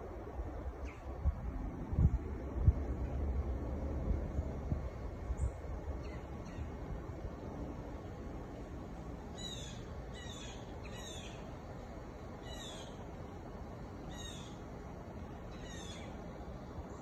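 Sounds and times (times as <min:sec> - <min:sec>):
low background rumble: 0:00.0 - 0:17.0
bird high downward calls: 0:09.3 - 0:11.6, 0:12.4 - 0:13.2, 0:14.0 - 0:14.7, 0:15.3 - 0:16.2.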